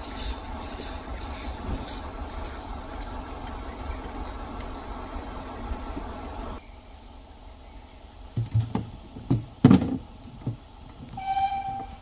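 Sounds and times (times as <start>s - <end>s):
train doors slamming: 8.4s - 12.0s
whistle tone: 11.2s - 12.0s.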